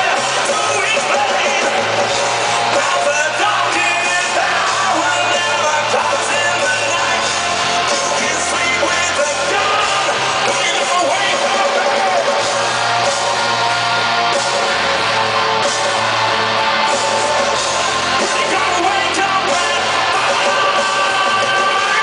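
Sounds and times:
man singing into microphone: 0.0s - 1.9s, 2.7s - 12.3s, 18.2s - 22.0s
drums: 0.0s - 22.0s
electric guitar: 0.0s - 22.0s.

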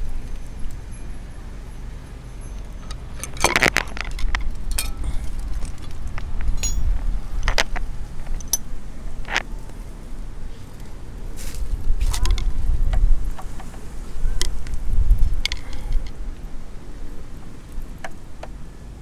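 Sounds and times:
metal hand tools clinking: 2.3s - 5.7s, 6.4s - 7.0s.

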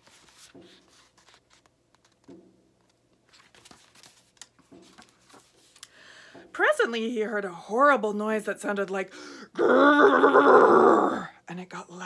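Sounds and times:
book pages rustling and clicking: 0.0s - 6.0s.

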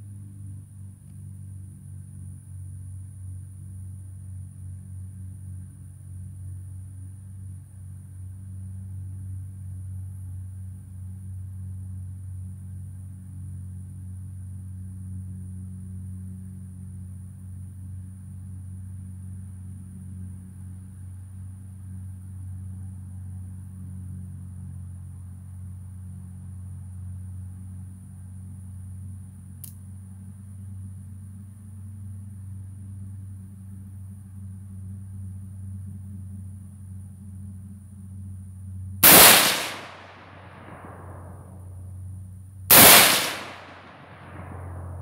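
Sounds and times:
rifle shot with echo: 39.0s - 41.6s, 42.7s - 45.0s
steady low rumble: 39.0s - 42.0s, 42.7s - 45.0s.

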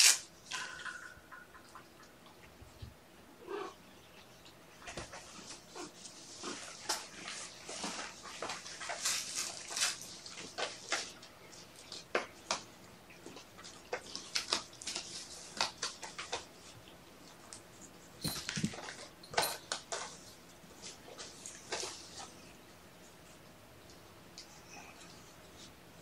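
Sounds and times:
kittens playing with toys: 4.8s - 22.5s.

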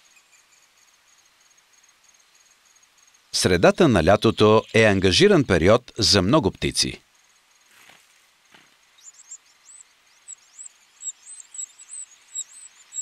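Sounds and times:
nestlings cheeping: 3.4s - 7.0s.

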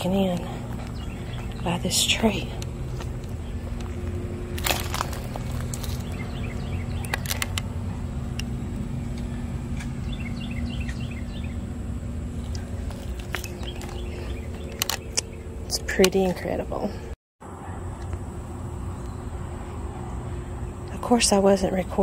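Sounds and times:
bird chirping: 0.0s - 18.2s
road traffic rumble: 0.0s - 22.0s
sharp clicks: 7.0s - 7.7s.

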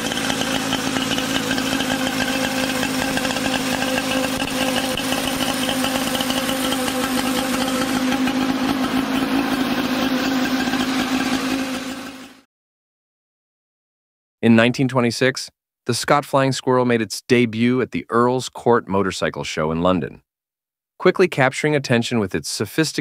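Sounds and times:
two-stroke motorcycle engine running: 0.0s - 12.5s.

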